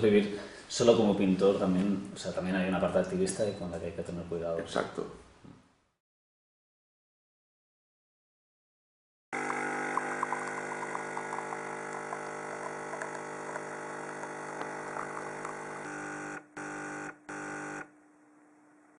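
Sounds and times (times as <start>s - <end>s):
electric buzzing hum: 9.4s - 19.0s.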